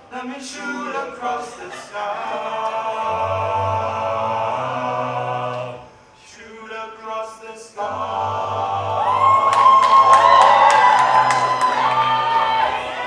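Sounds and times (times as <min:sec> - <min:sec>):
male a cappella group singing: 0:00.0 - 0:10.0.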